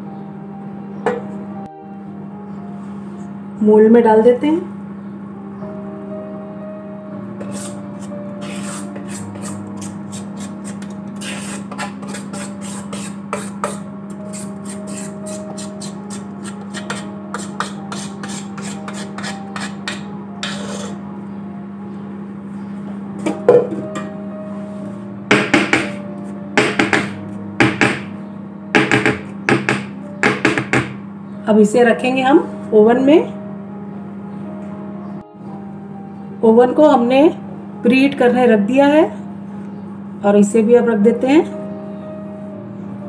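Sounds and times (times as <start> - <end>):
spatula scraping steel bowl: 7.4 - 21.0
cake tin knocking on counter: 23.3 - 23.8, 25.3 - 26.0, 26.6 - 28.1, 28.8 - 31.0.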